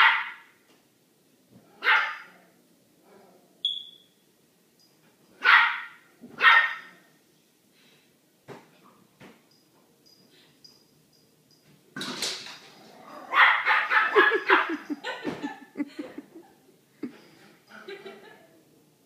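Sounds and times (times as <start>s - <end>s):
small dog barking: 0.0s - 0.5s, 1.8s - 2.4s, 5.4s - 7.0s, 13.3s - 14.8s.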